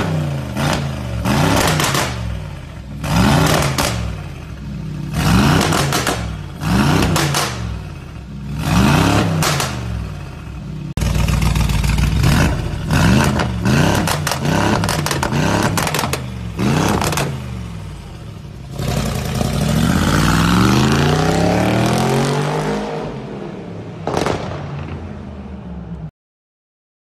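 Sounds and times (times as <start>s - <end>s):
car engine revving: 0.0s - 23.4s
exhaust popping and crackling: 11.0s - 17.3s.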